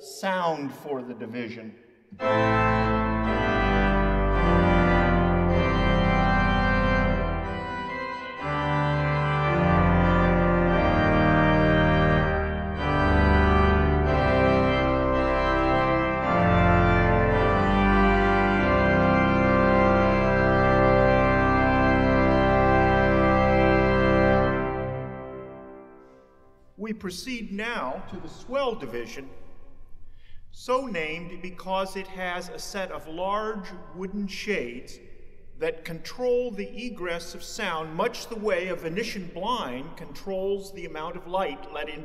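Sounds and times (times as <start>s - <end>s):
pipe organ playing chords: 2.2s - 29.2s.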